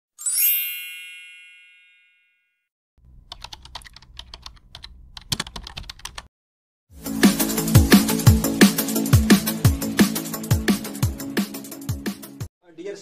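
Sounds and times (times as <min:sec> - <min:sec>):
bright rising chime: 0:00.2 - 0:02.3
keyboard typing clicks: 0:03.3 - 0:06.3.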